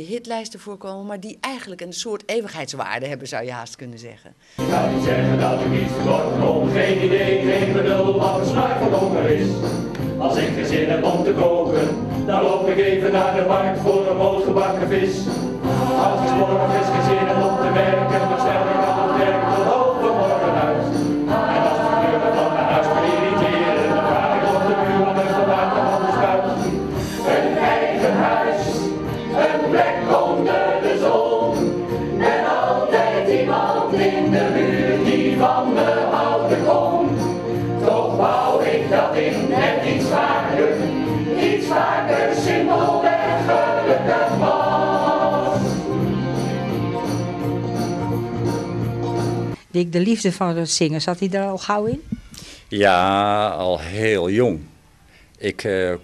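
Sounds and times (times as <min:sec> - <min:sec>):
mixed choir singing: 0:04.6 - 0:46.8.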